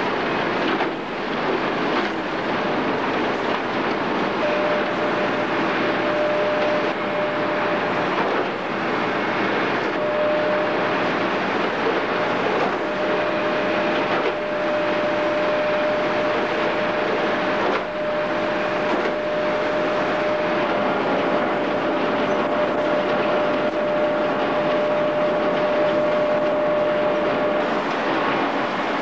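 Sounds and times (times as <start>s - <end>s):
slat conveyor running: 0.2s - 29.0s
thin mechanical whine: 4.0s - 29.0s.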